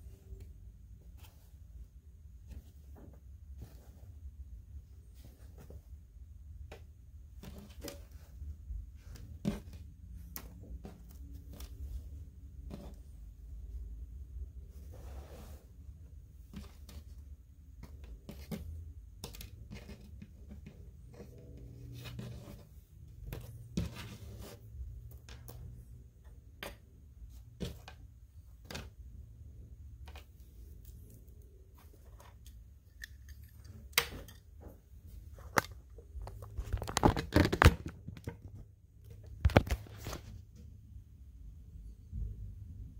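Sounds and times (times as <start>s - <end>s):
plastic clatter: 35.4s - 40.2s.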